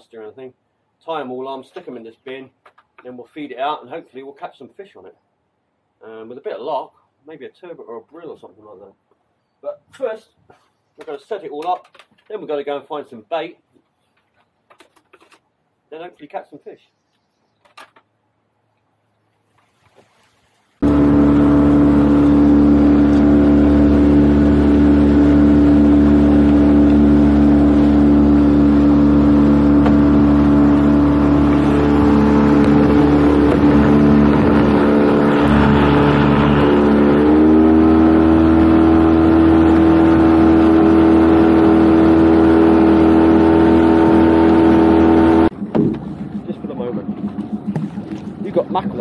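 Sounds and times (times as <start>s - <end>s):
outboard motor running: 20.8s - 49.0s
water wash: 20.8s - 49.0s
wind noise: 29.4s - 37.0s.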